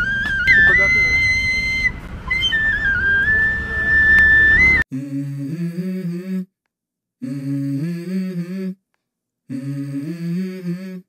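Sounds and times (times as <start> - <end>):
bamboo flute note: 0.0 - 4.8
low hummed melody: 0.0 - 4.8
street noise: 0.0 - 4.8.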